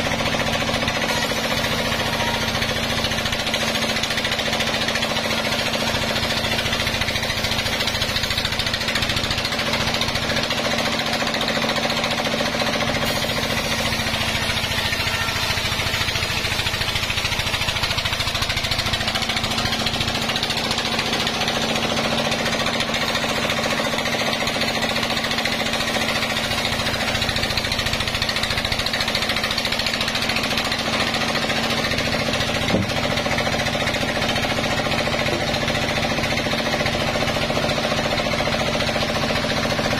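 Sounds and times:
band saw ripping through log: 0:00.0 - 0:39.9
short knock: 0:32.7 - 0:33.0.

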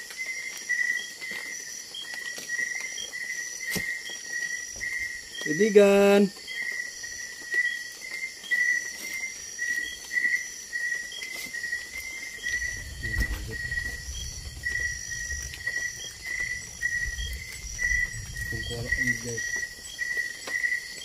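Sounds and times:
night insects chirping: 0:00.0 - 0:21.0
low rumble: 0:12.4 - 0:20.4.

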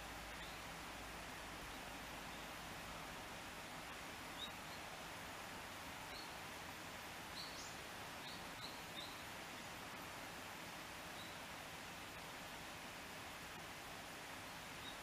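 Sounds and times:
small birds chirping: 0:00.0 - 0:03.1, 0:04.2 - 0:05.1, 0:05.9 - 0:06.4, 0:07.2 - 0:09.7, 0:11.0 - 0:11.6, 0:14.4 - 0:15.0
steady background hiss: 0:00.0 - 0:15.0.

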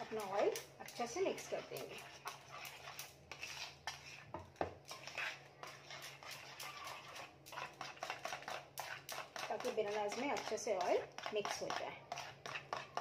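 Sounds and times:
spoon clinking and scraping bowl: 0:00.0 - 0:13.0.

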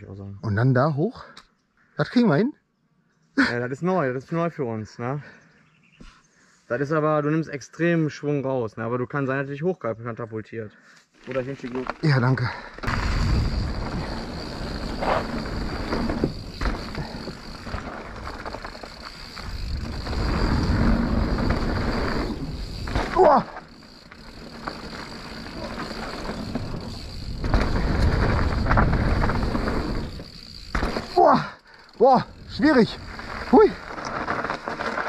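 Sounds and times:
bike tyres on dirt: 0:11.1 - 0:35.0
bike rattling over bumps: 0:11.2 - 0:35.0.

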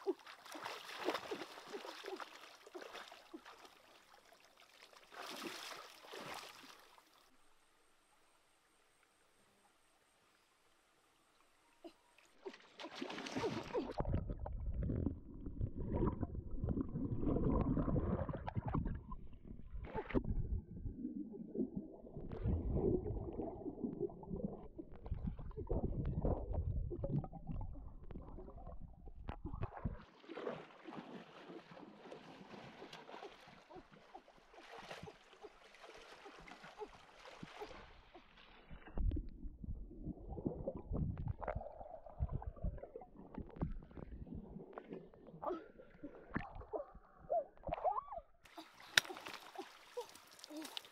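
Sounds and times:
underwater churning and gurgling: 0:13.4 - 0:30.8, 0:36.4 - 0:48.0.

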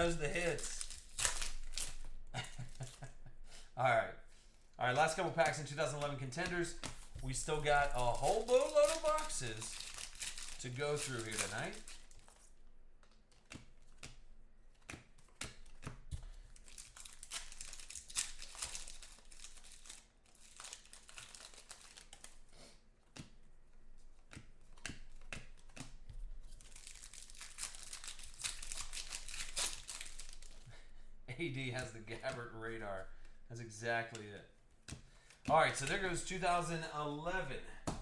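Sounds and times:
foil wrappers tearing and crinkling: 0:00.0 - 0:03.1, 0:05.0 - 0:12.6, 0:16.4 - 0:22.5, 0:26.5 - 0:30.7.

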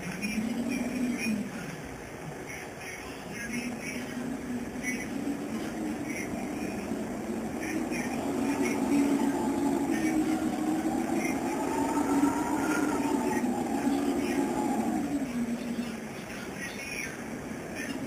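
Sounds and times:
low drone rising in pitch: 0:03.5 - 0:16.2.

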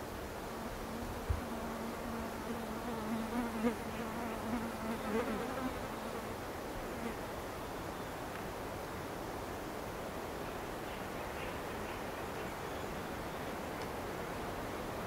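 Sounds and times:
flying insect buzzing: 0:00.6 - 0:06.3.

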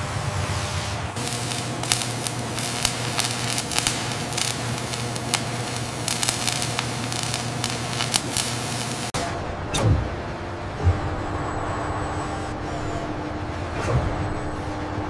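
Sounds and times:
low hum: 0:00.0 - 0:15.0
sharp pops: 0:01.2 - 0:09.1
welding arc crackling and hissing: 0:01.2 - 0:09.2.

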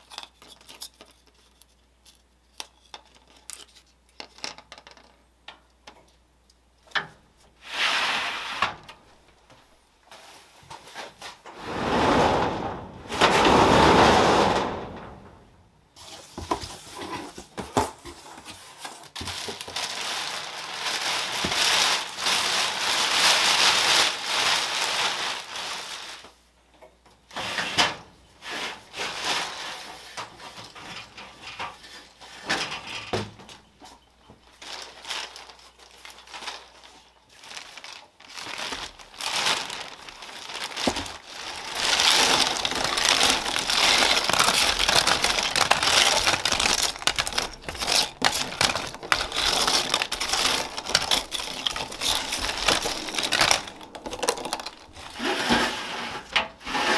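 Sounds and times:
plastic bag rustling and crinkling: 0:16.0 - 0:26.5, 0:28.4 - 0:32.9, 0:33.8 - 0:56.7.

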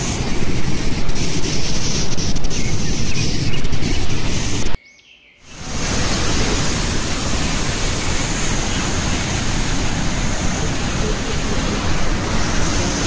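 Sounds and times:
waterfall rushing: 0:05.5 - 0:13.0.

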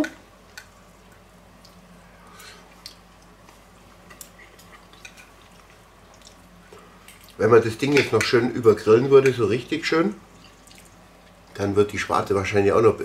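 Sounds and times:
low steady hum: 0:00.0 - 0:13.0
chewing: 0:01.1 - 0:07.4, 0:10.3 - 0:11.5.

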